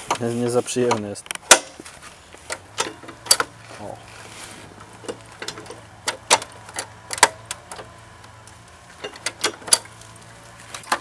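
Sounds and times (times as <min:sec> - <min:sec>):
sharp mechanical clicks and knocks: 0:00.8 - 0:01.8, 0:02.4 - 0:03.6, 0:04.8 - 0:11.0.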